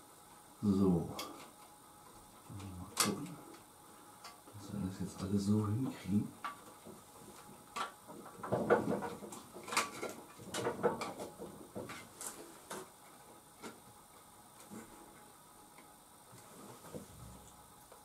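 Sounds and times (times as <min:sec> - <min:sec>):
rustling of cables: 0:01.0 - 0:18.0.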